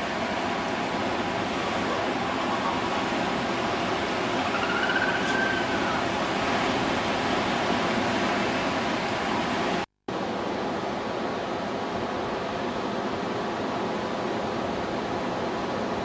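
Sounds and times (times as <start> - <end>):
sea surf breaking over rocks: 0.0 - 9.8.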